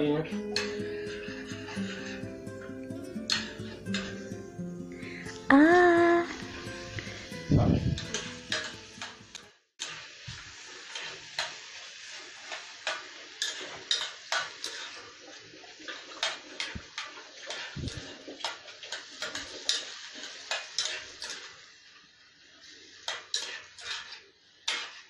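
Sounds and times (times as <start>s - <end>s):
vegetables sizzling in butter: 0.0s - 25.0s
spoon scraping a saucepan: 0.5s - 4.5s, 6.6s - 10.0s, 12.8s - 15.1s, 23.1s - 25.0s.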